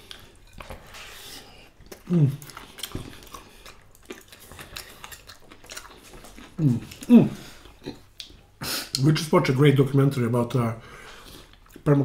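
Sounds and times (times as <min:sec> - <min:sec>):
chewing food: 0:00.0 - 0:08.6.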